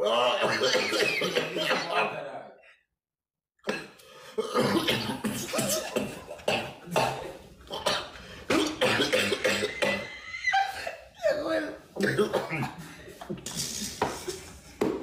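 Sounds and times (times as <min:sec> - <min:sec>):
person coughing: 0:00.3 - 0:02.1, 0:03.6 - 0:11.0, 0:12.0 - 0:14.4.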